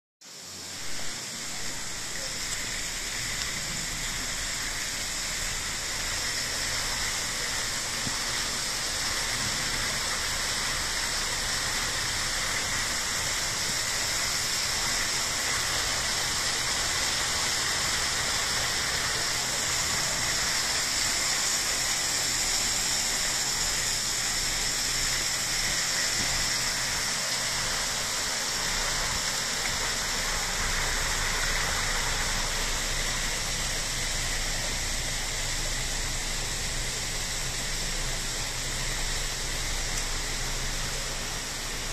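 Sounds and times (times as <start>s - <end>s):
small waterfall splashing: 0.2s - 41.9s.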